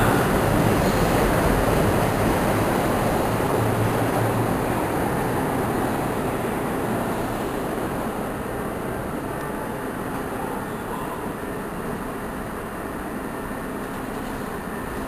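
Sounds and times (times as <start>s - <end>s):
subway train rumbling in station: 0.0s - 15.0s.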